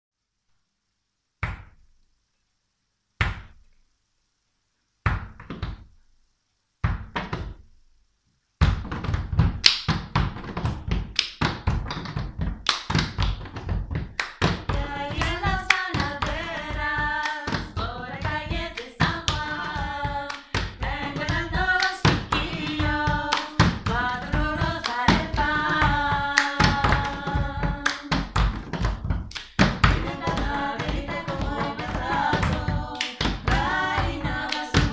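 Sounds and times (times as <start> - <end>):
women singing in harmony: 14.7 - 28.4, 29.8 - 34.9.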